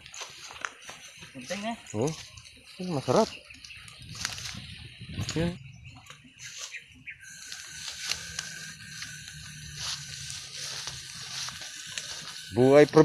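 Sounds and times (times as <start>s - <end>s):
footsteps through undergrowth: 0.0s - 13.0s
leafy vines rustling and crackling: 0.0s - 13.0s.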